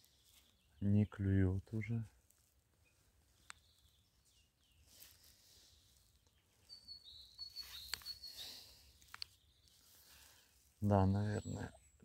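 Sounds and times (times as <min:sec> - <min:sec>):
bird whistled call: 0:06.7 - 0:08.7
faint clicks: 0:09.0 - 0:09.4.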